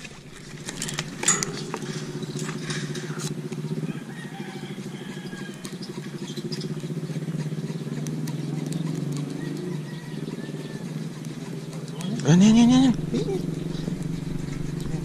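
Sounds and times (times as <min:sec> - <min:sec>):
sharp clicks and rattles: 0:00.0 - 0:03.7
small engine running: 0:00.0 - 0:15.0.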